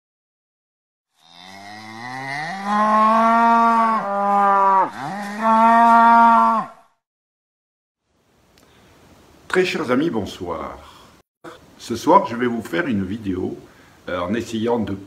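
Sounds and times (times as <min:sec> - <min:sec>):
cow mooing: 0:01.1 - 0:06.9.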